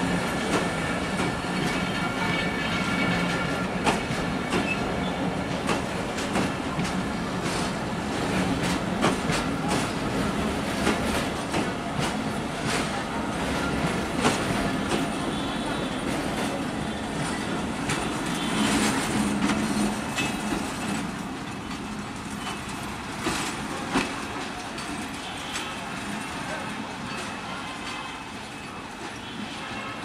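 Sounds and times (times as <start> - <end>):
train wheels clattering over rail joints: 3.0 - 15.2, 17.2 - 25.6.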